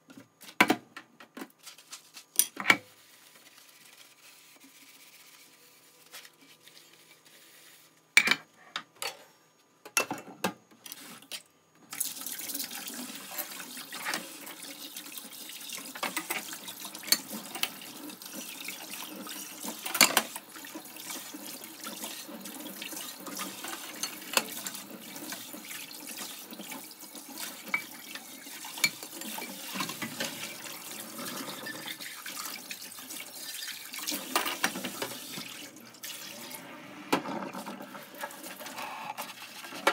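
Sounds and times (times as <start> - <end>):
tap water running into sink: 11.9 - 39.9.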